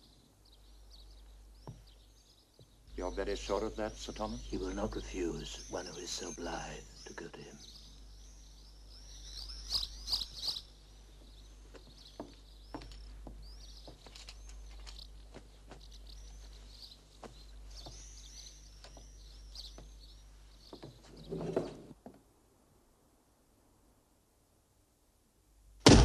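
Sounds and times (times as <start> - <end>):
small birds chirping: 0.0 - 22.0
light clicks and rustles: 11.7 - 16.6.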